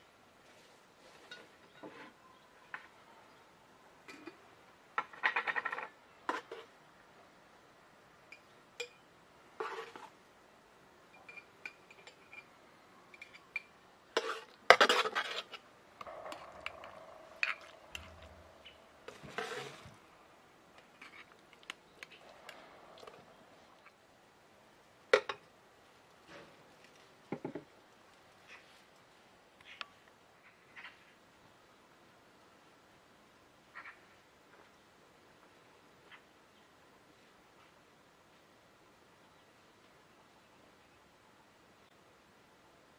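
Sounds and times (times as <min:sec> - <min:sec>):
metal spoon scraping a metal pot: 0:17.4 - 0:19.9.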